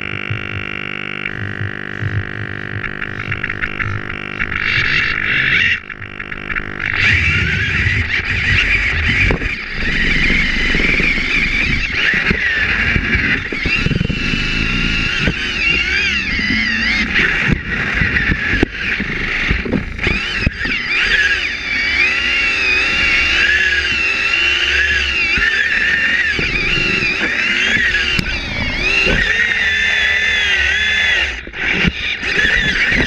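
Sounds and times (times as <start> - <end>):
small electric motors whining: 0.0 - 33.0
wheels rumbling on plywood: 0.0 - 33.0
robots bumping knocks: 0.1 - 5.6.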